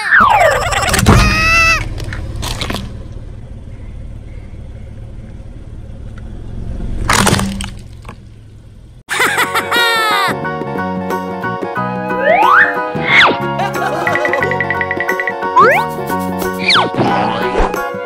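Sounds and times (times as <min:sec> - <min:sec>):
gliding cartoon sound effect: 0:00.0 - 0:01.8, 0:12.1 - 0:13.4, 0:15.6 - 0:16.0
low rumble of car: 0:00.3 - 0:09.1
car tyre crushing object: 0:01.0 - 0:03.2, 0:07.0 - 0:08.4.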